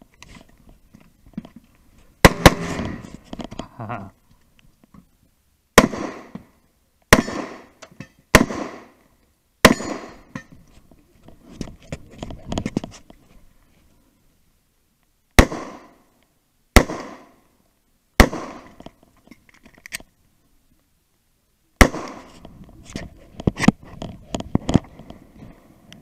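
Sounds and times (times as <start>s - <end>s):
rustling: 0.0s - 5.3s
pistol shots with echo: 2.2s - 3.0s, 5.8s - 6.3s, 7.1s - 7.7s, 8.3s - 9.0s, 9.6s - 10.2s, 15.4s - 16.0s, 16.8s - 17.3s, 18.2s - 18.7s, 21.8s - 22.3s.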